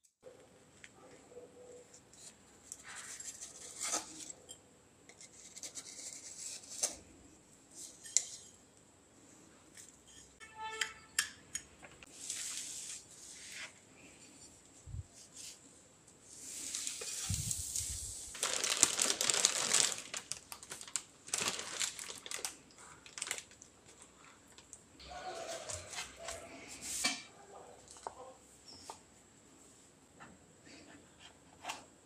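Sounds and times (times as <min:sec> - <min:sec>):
plastic bag crinkling: 0:16.7 - 0:24.8.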